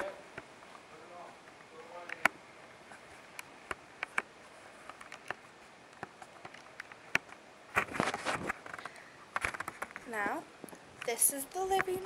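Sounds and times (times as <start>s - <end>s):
rustling: 0.0s - 12.0s.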